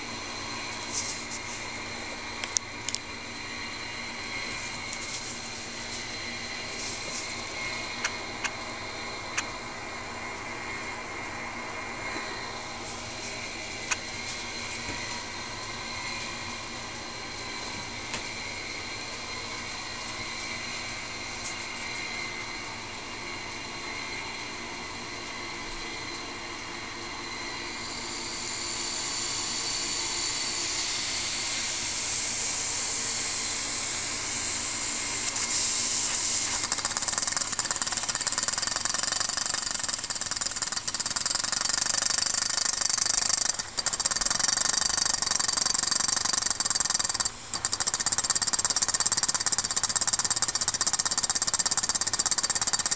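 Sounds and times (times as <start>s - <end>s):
compressed air hissing: 28.6s - 52.9s
model steam engine chattering: 36.4s - 52.9s.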